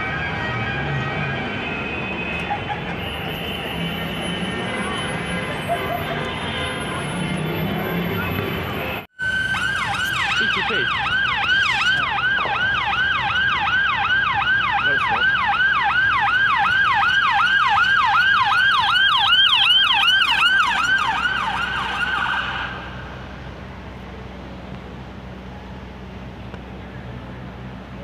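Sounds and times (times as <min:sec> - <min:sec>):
emergency siren on fast yelp: 0:00.0 - 0:03.0, 0:07.1 - 0:23.2
low traffic hum: 0:00.0 - 0:28.0.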